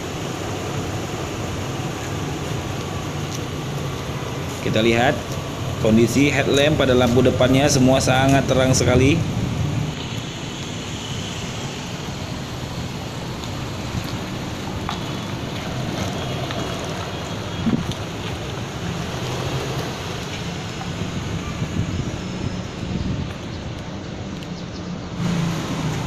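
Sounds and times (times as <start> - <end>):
wind noise on microphone: 11.3 - 26.0.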